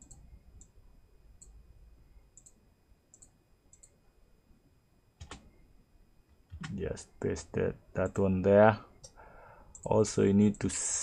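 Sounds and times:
computer mouse clicks: 0.0 - 0.7, 2.3 - 4.0, 5.2 - 5.5.

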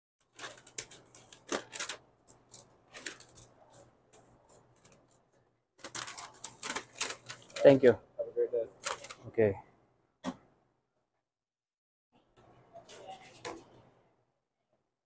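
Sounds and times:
crinkling rustles: 0.2 - 7.9, 8.7 - 9.3.

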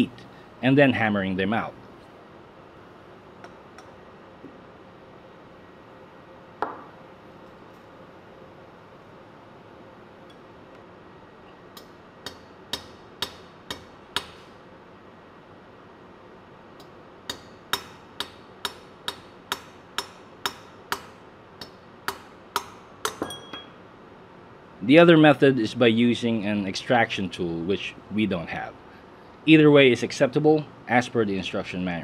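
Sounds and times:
hammer striking metal: 11.8 - 14.4, 17.3 - 23.8.

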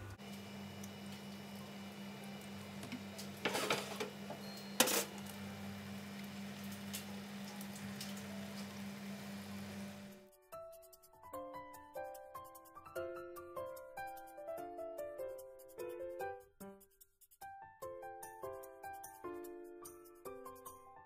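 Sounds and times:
kitchen clatter: 2.8 - 5.3.

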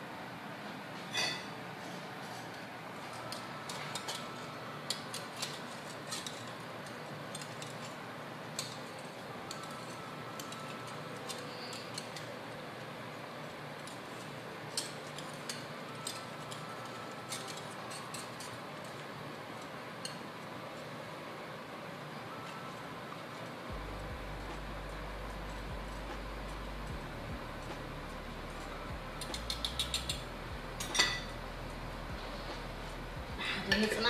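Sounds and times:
spoon clinking on metal pot: 30.8 - 31.4.

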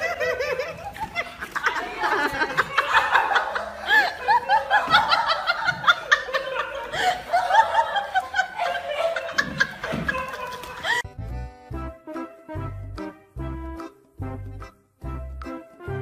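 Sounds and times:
people laughing hard: 0.0 - 11.1.

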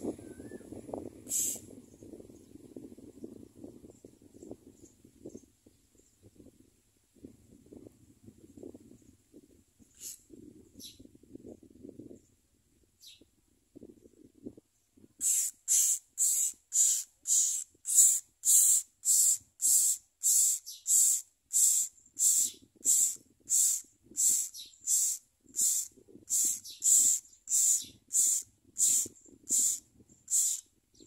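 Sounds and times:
nestlings begging calls: 1.3 - 1.6, 15.2 - 30.6.

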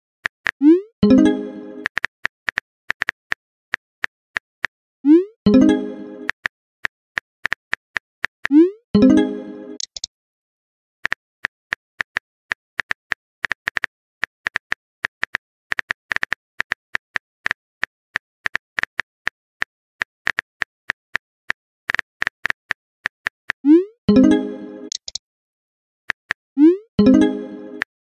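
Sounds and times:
rising pop sound effect: 0.6 - 1.9, 5.1 - 6.3, 8.5 - 9.9, 23.7 - 25.0, 26.6 - 27.9
phone keyboard typing clicks: 9.8 - 10.1, 24.9 - 25.2.

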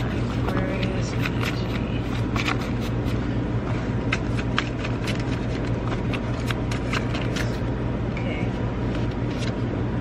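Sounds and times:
cards being shuffled: 0.0 - 3.3, 4.0 - 7.7, 8.8 - 9.7
steady low hum: 0.0 - 10.0.

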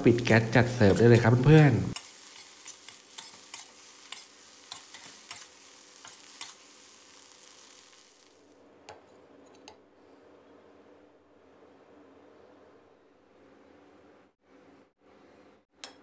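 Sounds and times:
rice sizzling in a wok: 0.0 - 8.6.

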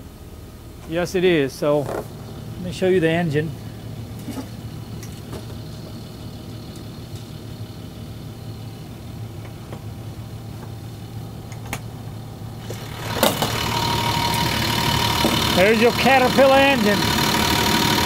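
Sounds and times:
diesel engine idling: 0.0 - 18.0.

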